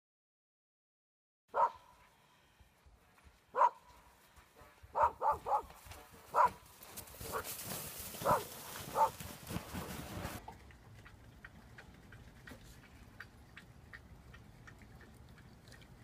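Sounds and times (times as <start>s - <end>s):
dog barking: 1.5s - 1.9s, 3.5s - 3.9s, 4.9s - 5.7s, 6.3s - 6.6s, 7.3s - 7.5s, 8.2s - 9.2s.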